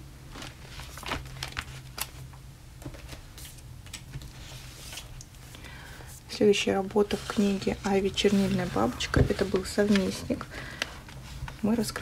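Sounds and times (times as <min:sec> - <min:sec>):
low steady hum: 0:00.0 - 0:12.0
paper rustling: 0:00.3 - 0:03.6, 0:04.2 - 0:05.2, 0:07.0 - 0:12.0.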